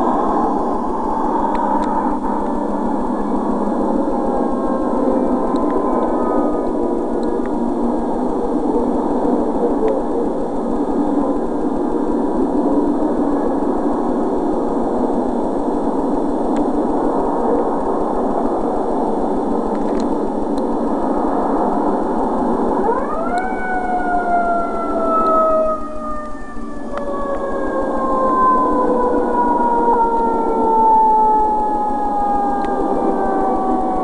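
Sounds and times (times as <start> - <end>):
noisy drone: 0.0 - 34.0
siren winding up: 22.8 - 34.0.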